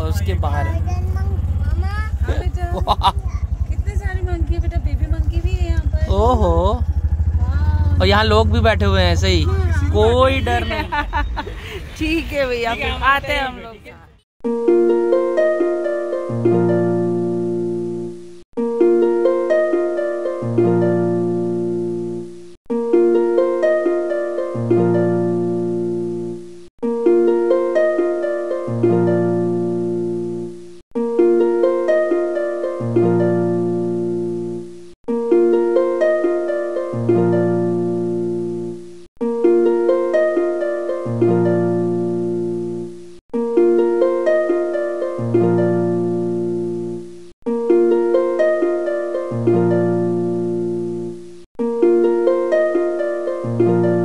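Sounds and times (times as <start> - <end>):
plucked-string phrase: 0.0 - 5.4, 6.1 - 10.7, 14.4 - 54.0
deep bass note: 3.6 - 10.7.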